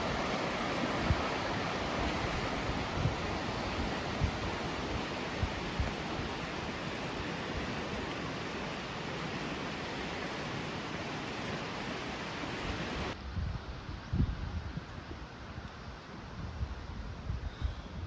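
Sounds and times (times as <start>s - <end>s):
wind buffeting microphone: 0.0s - 6.4s, 13.1s - 18.0s
river rushing over rapids: 0.0s - 13.2s.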